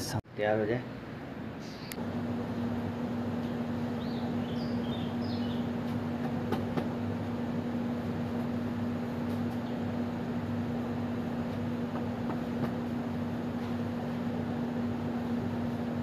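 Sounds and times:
steady machine hum: 0.0 - 16.0
bird chirps: 1.6 - 2.0, 3.9 - 5.8.

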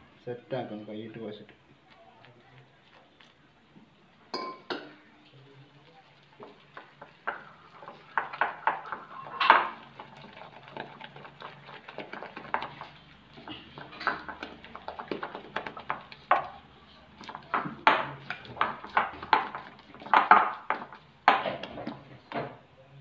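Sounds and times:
batter slapping and squelching: 6.1 - 22.4.

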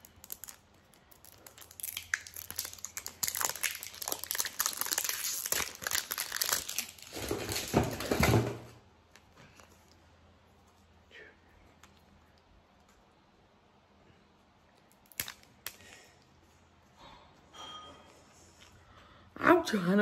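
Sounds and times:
plastic wrapper crinkling: 0.0 - 8.4, 14.8 - 16.0.

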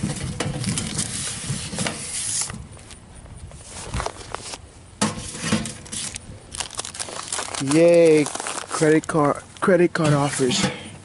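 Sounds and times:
paper mail rustling: 0.6 - 2.6, 3.6 - 4.6, 5.2 - 9.7.

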